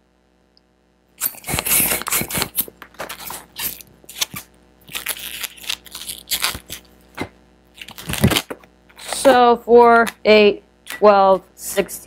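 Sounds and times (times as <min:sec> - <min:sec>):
balloon squeaking and rubbing: 0:01.2 - 0:06.8.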